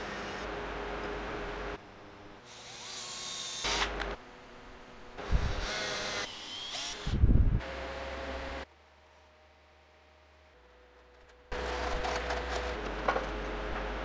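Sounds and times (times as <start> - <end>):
power drill driving screws: 2.5 - 4.0.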